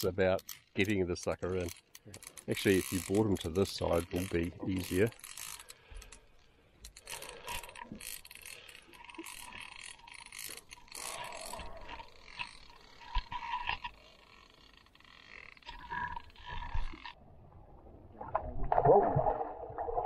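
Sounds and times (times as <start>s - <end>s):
water splashing: 17.8s - 20.0s.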